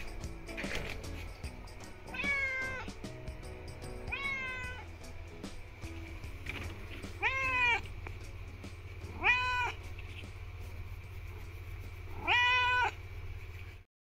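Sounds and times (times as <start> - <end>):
cat meowing: 2.1 - 3.0, 4.1 - 4.9, 7.1 - 7.9, 9.1 - 9.8, 12.1 - 13.0.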